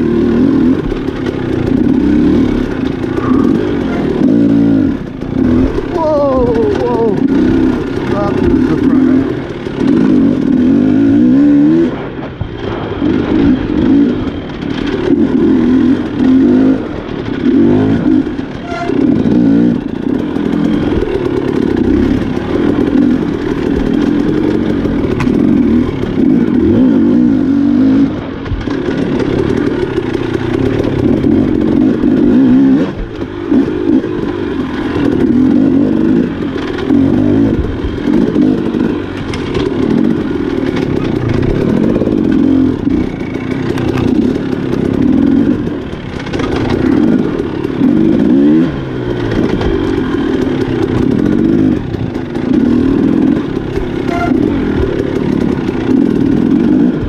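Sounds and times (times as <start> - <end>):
motorcycle engine revving: 0.0 - 57.0
knocks and clatter: 12.2 - 26.7, 28.4 - 57.0.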